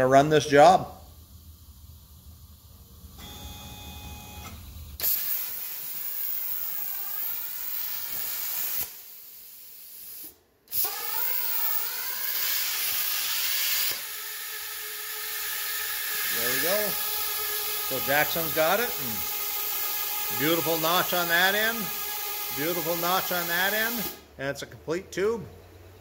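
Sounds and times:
faint motor whine: 1.0s - 5.0s
plasma cutter hiss: 5.0s - 24.2s.

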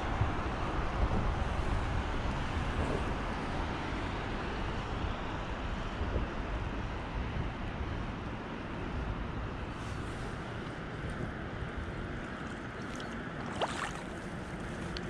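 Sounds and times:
fast-flowing river rushing: 12.2s - 15.0s.

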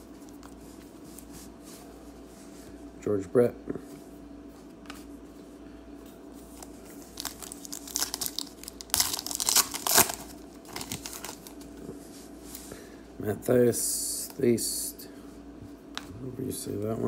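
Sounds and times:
foil wrapper tearing and crinkling: 7.0s - 11.6s.

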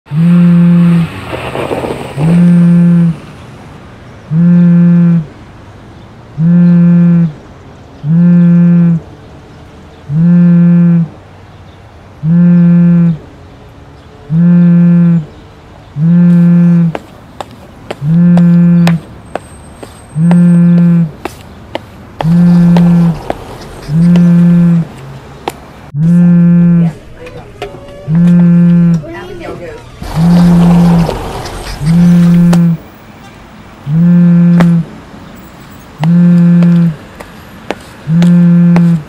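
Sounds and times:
phone vibrate alert buzzing: 0.1s - 1.1s, 2.4s - 3.1s, 4.3s - 5.3s, 6.4s - 7.4s, 8.1s - 9.0s, 10.1s - 11.1s, 12.2s - 13.2s, 14.3s - 15.2s, 16.0s - 16.9s, 18.0s - 19.0s, 20.2s - 21.1s, 22.2s - 24.9s, 26.0s - 26.9s, 28.1s - 29.0s, 33.9s - 34.9s, 36.0s - 37.0s, 38.1s - 39.0s.

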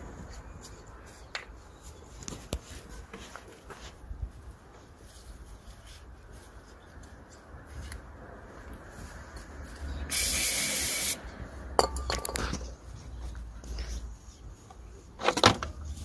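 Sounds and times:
aerosol spray hissing: 10.1s - 11.2s.

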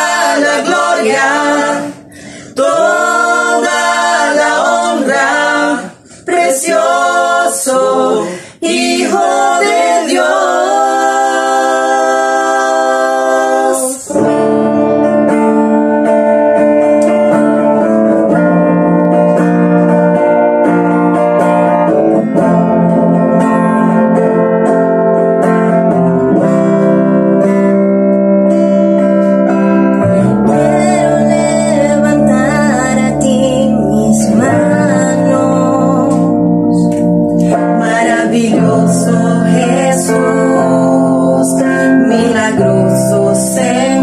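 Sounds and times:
singers holding a chord: 0.0s - 14.4s
electric and bass guitar: 0.0s - 44.0s.

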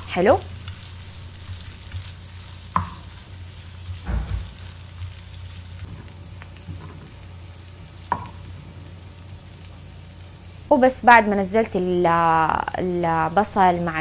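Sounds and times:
meat and onion sizzling in fat: 0.0s - 14.0s
sharp knocks: 4.0s - 4.5s.

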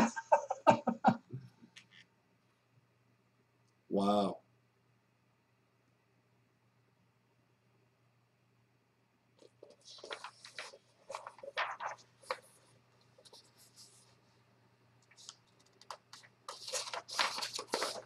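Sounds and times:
newspaper pages rustling: 9.4s - 14.2s, 15.1s - 18.0s.

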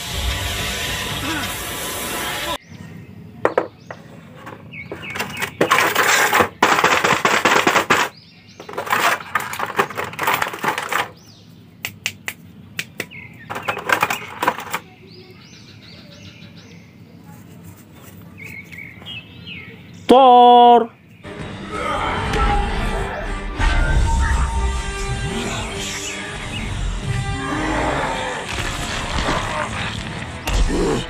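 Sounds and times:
film soundtrack music: 21.3s - 31.0s.

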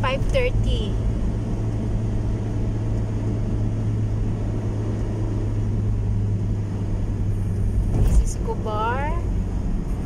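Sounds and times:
car engine hum: 0.0s - 10.0s
tyres on the road: 0.0s - 10.0s.

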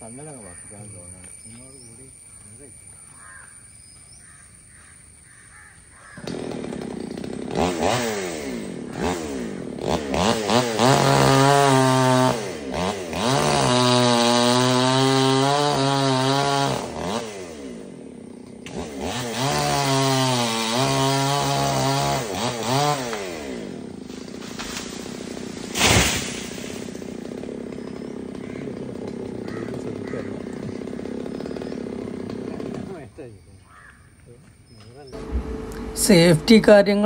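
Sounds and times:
chainsaw revving and cutting: 6.1s - 33.1s, 35.1s - 37.0s.

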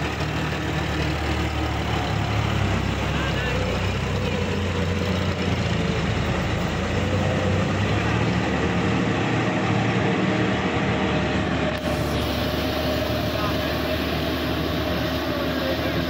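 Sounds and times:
tractor diesel engine under load: 0.0s - 16.0s.

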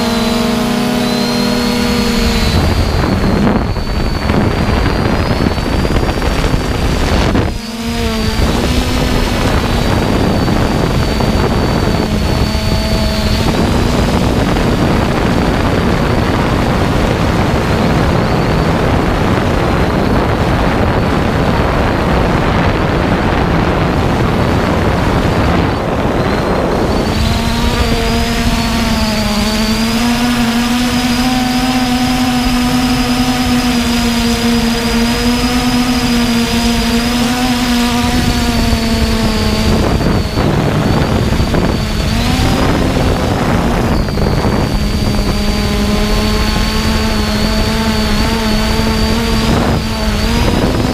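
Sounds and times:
drone propellers whining: 0.0s - 50.9s
wind noise on microphone: 0.0s - 50.9s.

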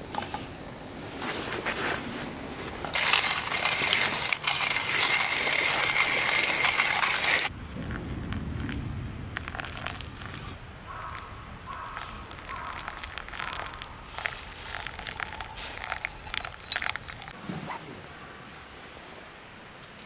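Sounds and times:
wet coffee grounds bubbling: 2.9s - 17.4s
water pouring onto coffee: 3.0s - 7.5s, 8.6s - 17.4s.

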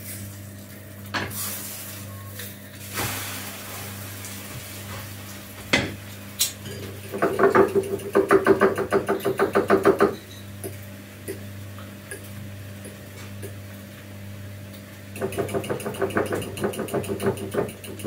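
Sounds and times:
steady low hum: 0.0s - 18.0s
utensil knocking in frying pan: 7.1s - 10.2s, 15.2s - 18.0s
fork beating eggs in a bowl: 15.2s - 18.0s.

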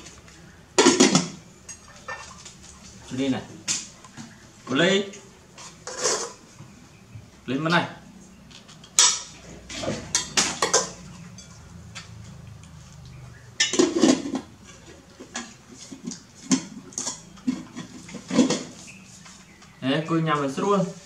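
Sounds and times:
metal ladle clinking on pot: 10.1s - 11.6s.

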